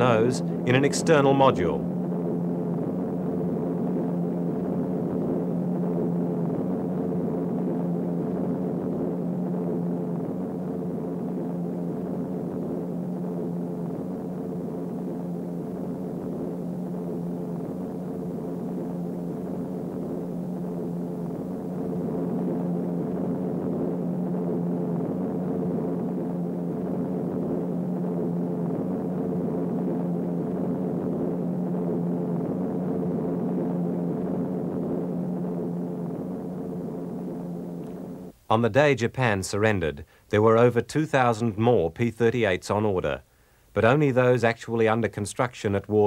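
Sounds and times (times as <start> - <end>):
propeller aircraft engines droning: 0.0 - 4.6.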